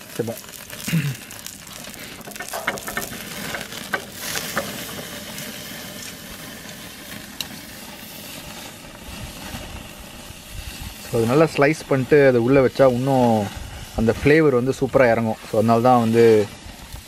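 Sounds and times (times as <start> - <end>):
meat sizzling on grill: 0.0 - 17.0
pops and crackles: 0.0 - 17.0.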